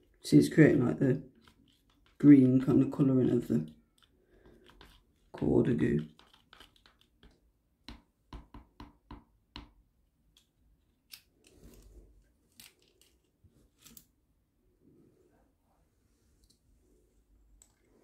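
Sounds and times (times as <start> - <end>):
spoon tapping plastic cup: 6.0 - 9.8.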